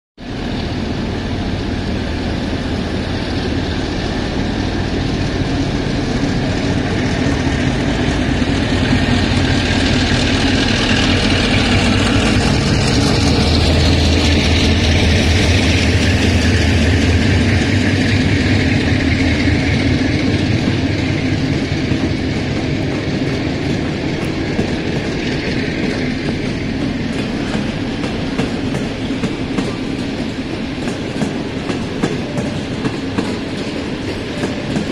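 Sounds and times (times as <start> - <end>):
locomotive humming: 0.2 - 34.9.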